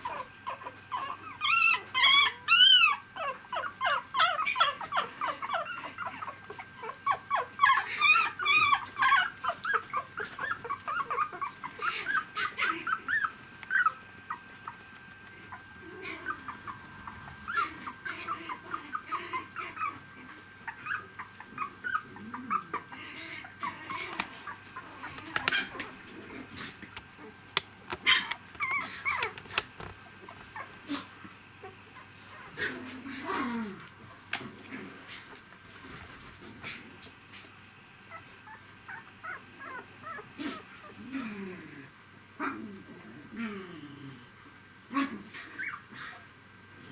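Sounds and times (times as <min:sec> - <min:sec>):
puppy wavering squeal: 0:00.0 - 0:14.0
puppies whimpering and squeaking: 0:00.0 - 0:32.7, 0:38.1 - 0:41.0, 0:45.4 - 0:46.2.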